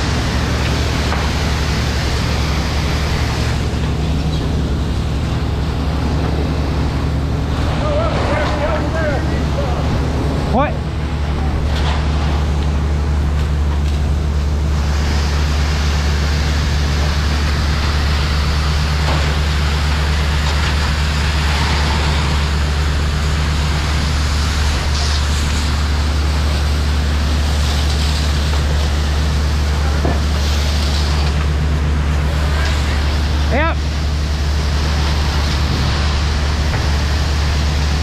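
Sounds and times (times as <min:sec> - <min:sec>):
hose spraying water: 0:00.0 - 0:38.0
pump engine droning: 0:00.0 - 0:38.0.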